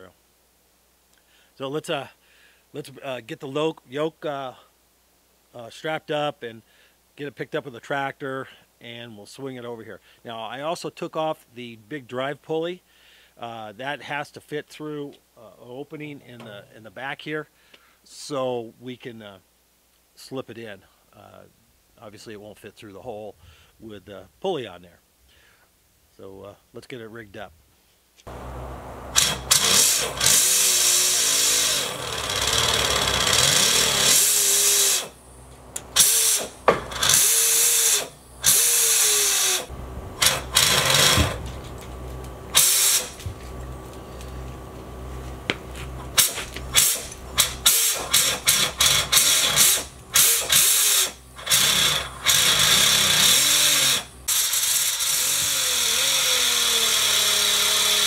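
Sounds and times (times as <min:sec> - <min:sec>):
small electric motor running: 0:28.3 - 0:58.0.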